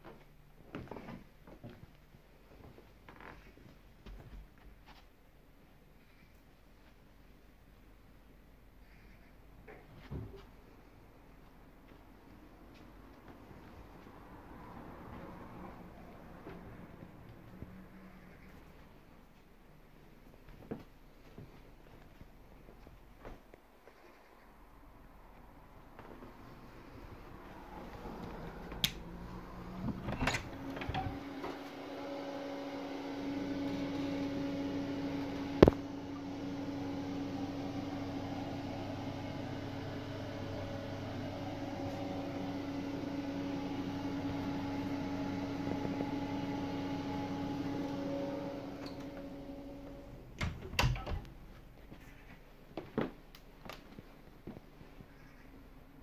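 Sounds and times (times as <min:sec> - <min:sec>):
fan motor humming: 0:26.0 - 0:51.4.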